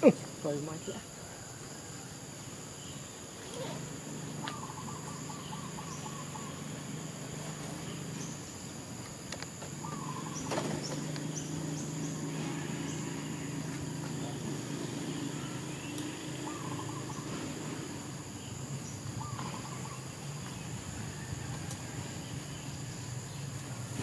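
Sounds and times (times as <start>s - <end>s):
high-pitched insect drone: 2.9s - 21.2s
warbling animal calls: 3.4s - 7.3s, 9.8s - 13.7s, 14.3s - 18.1s.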